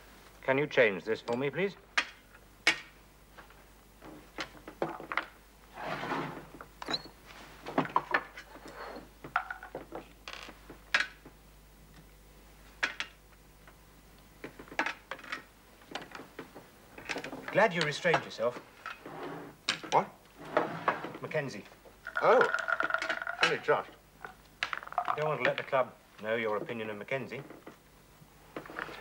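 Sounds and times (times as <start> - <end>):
sweets rattling in jar: 22.0 - 23.8.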